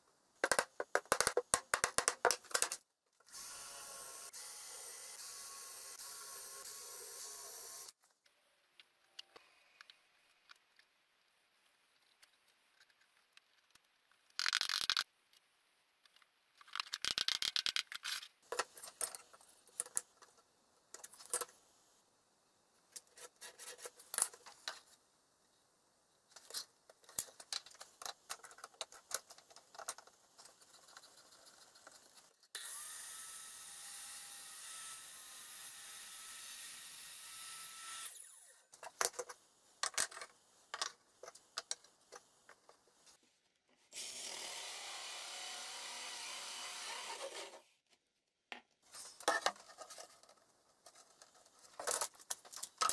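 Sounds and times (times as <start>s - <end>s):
power tool running: 32.6s - 38.4s, 44.0s - 47.6s.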